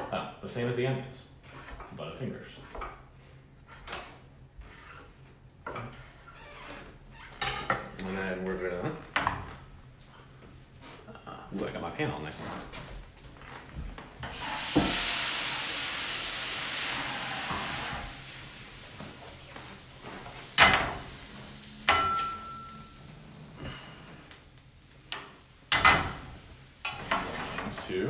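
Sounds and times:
tap running into sink: 0:14.2 - 0:15.2.

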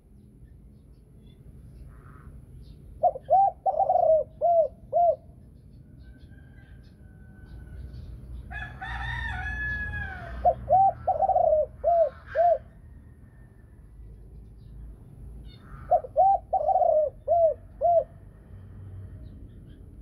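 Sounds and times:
dove cooing: 0:03.0 - 0:05.4, 0:08.9 - 0:13.0, 0:15.5 - 0:18.3.

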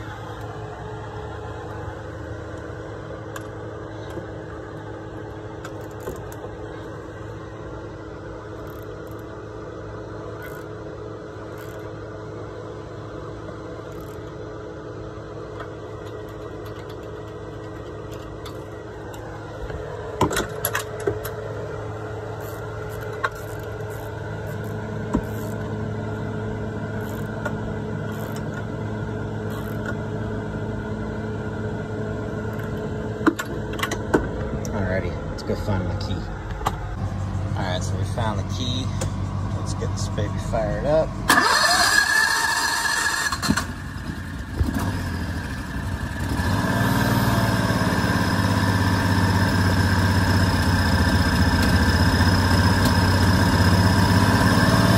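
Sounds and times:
low mechanical hum: 0:00.0 - 0:54.9
ratchet clicks and knocks: 0:22.4 - 0:25.7, 0:27.0 - 0:28.6.

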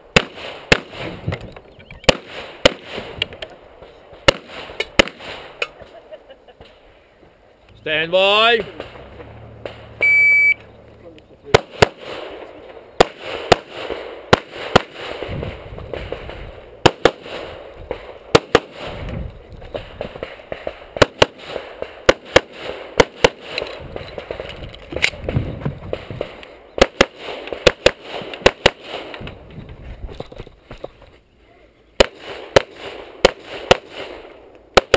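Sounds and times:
pistol shots: 0:00.1 - 0:01.2, 0:02.1 - 0:03.2, 0:04.2 - 0:05.7, 0:11.5 - 0:19.0, 0:19.8 - 0:23.6, 0:24.2 - 0:29.2, 0:32.0 - 0:34.9.

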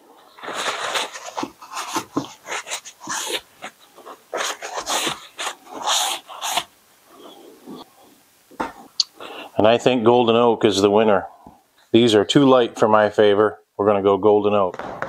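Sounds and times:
towel rubbing on wood: 0:00.4 - 0:07.8.

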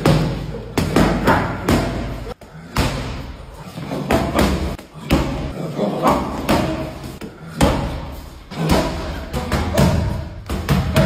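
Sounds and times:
boxing gloves hitting strike pads: 0:06.1 - 0:11.0.

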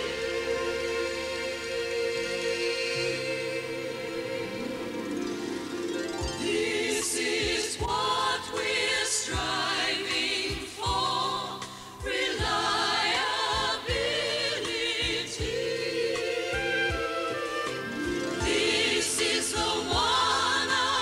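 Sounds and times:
group of voices singing: 0:00.0 - 0:05.6, 0:06.3 - 0:21.0
band accompaniment with beat: 0:16.2 - 0:20.5.

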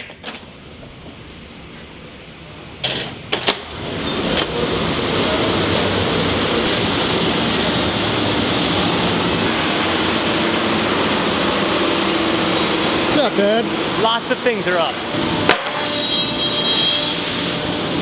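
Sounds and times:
dust collector running: 0:03.8 - 0:18.0
woodshop machinery running: 0:03.8 - 0:18.0.

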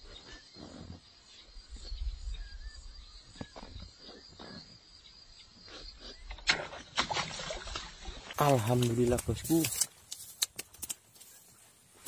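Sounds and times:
high insect hum: 0:00.0 - 0:12.0
small scattered ticks: 0:08.4 - 0:12.0.

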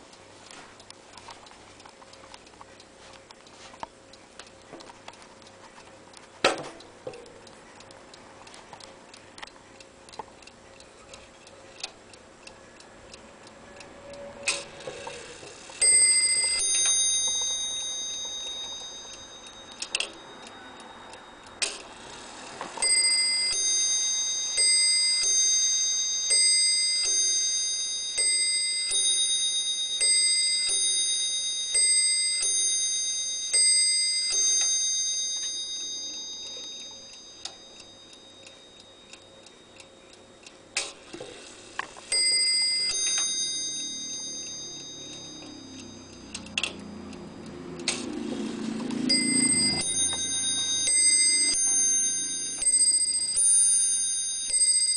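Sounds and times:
clock ticking: 0:00.0 - 0:54.9
clock bell striking: 0:14.2 - 0:39.8, 0:42.1 - 0:54.9.

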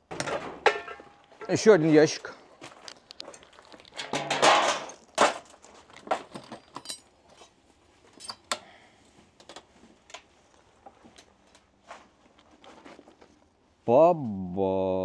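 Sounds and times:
rustling scrape of metal parts: 0:03.3 - 0:08.5
metal parts knocking and clinking: 0:03.9 - 0:07.2.

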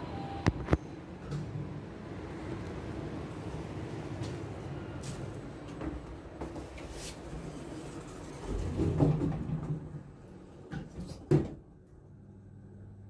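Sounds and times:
steady hum inside elevator: 0:00.0 - 0:13.0
elevator doors sliding shut: 0:06.6 - 0:11.2.

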